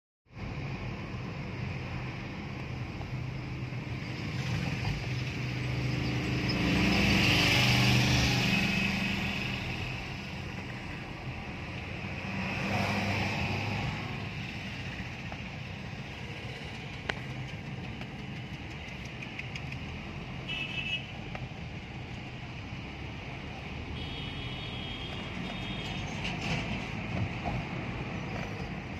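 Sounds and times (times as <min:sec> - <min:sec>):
car engine and tyre noise: 0:00.3 - 0:28.9.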